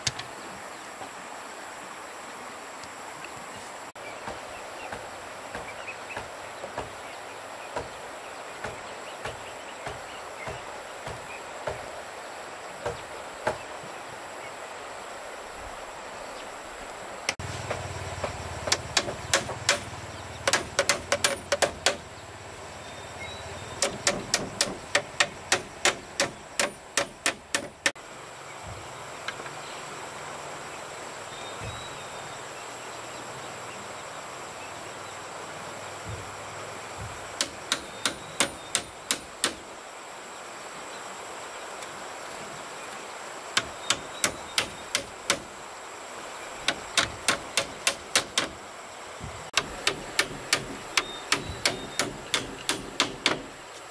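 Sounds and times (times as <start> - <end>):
steady high hiss: 0.0 - 53.9
hammer blows: 49.6 - 53.6.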